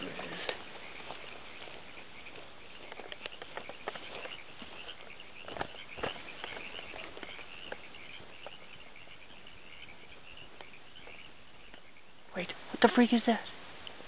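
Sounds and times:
insects chirping: 0:00.0 - 0:14.0
clicks and crackles: 0:02.4 - 0:08.6.

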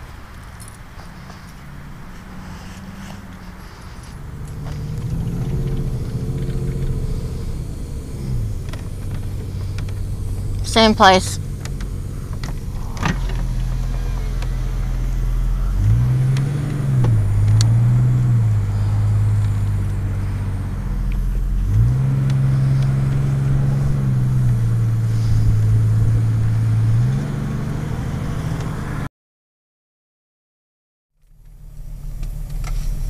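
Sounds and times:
car engine accelerating: 0:00.0 - 0:29.1, 0:31.2 - 0:33.0.

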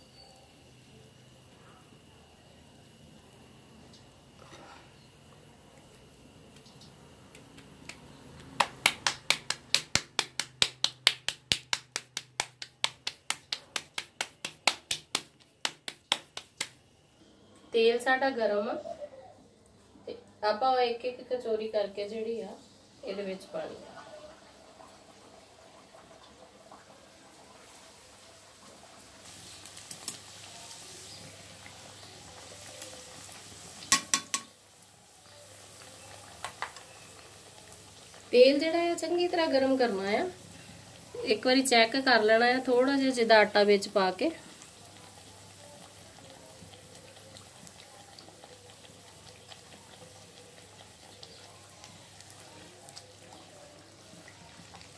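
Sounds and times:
food sizzling in hot oil: 0:00.0 - 0:05.4, 0:06.0 - 0:17.1, 0:21.0 - 0:54.9
dough slapping on hands: 0:07.3 - 0:16.8
metal utensil striking pan: 0:33.9 - 0:34.6.

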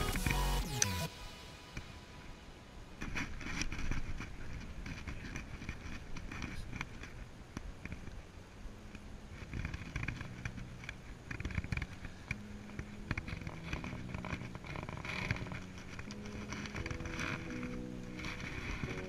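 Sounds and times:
faint electronic music: 0:00.0 - 0:03.5, 0:06.4 - 0:19.0
reel clicks and handling knocks: 0:08.9 - 0:19.0.

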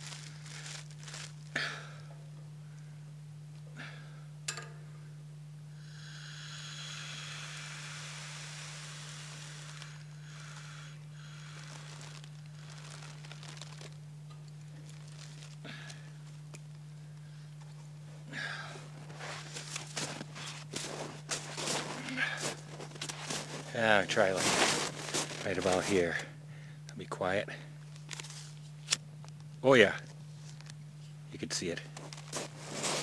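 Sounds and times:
plastic bag crinkling: 0:00.0 - 0:01.5, 0:11.4 - 0:16.4, 0:19.0 - 0:26.3, 0:32.0 - 0:33.0
steady low hum: 0:00.0 - 0:33.0
gas hissing from valve: 0:06.0 - 0:11.9.

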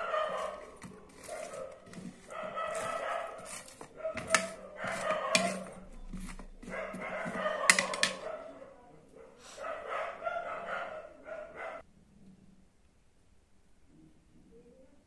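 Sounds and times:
spoon stirring on a plate: 0:00.0 - 0:08.3
spoon clinking against plate: 0:02.8 - 0:06.5.

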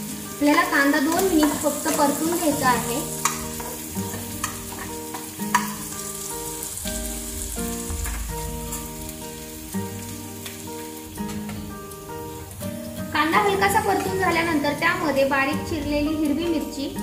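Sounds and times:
onion sizzling in hot oil: 0:00.0 - 0:17.0
metal spoon clicking on pan: 0:03.2 - 0:05.8.

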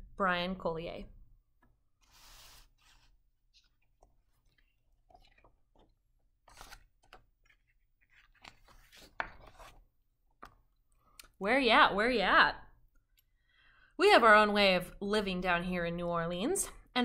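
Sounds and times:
book pages turning: 0:02.0 - 0:10.5.

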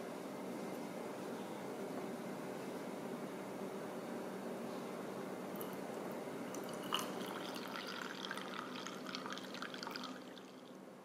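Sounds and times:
coffee pouring into mug: 0:06.5 - 0:10.8
glass clinking on mug: 0:06.7 - 0:10.1.

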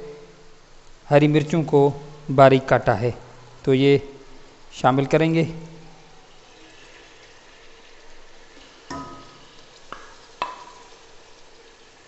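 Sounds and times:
food sizzling in a pot: 0:03.3 - 0:12.0
knock on a pot ringing: 0:08.9 - 0:09.3.

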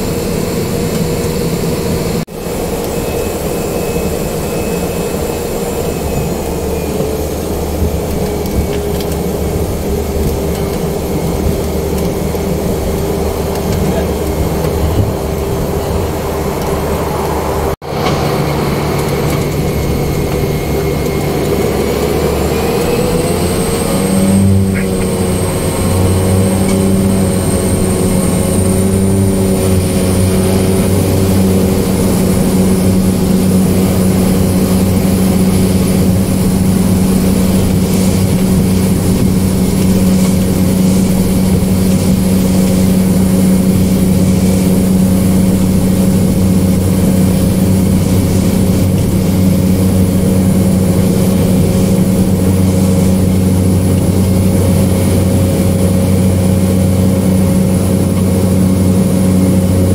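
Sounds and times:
turboprop engine and propeller: 0:00.0 - 0:59.9.

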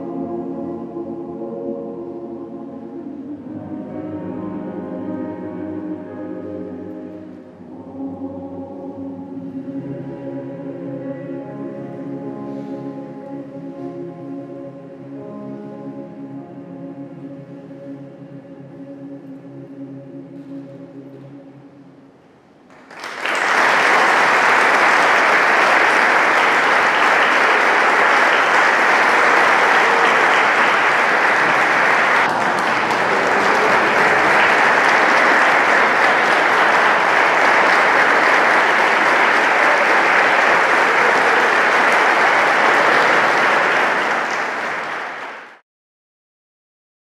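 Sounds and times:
audience applause: 0:22.7 - 0:45.6.

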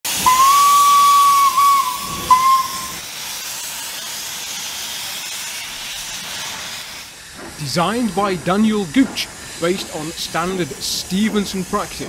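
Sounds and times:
steam whistle: 0:00.1 - 0:03.0
hiss of escaping steam: 0:00.1 - 0:12.0.

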